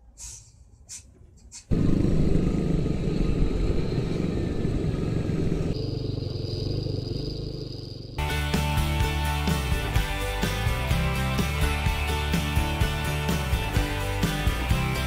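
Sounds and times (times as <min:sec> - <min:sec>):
vehicle engine and road noise: 0:00.2 - 0:15.0.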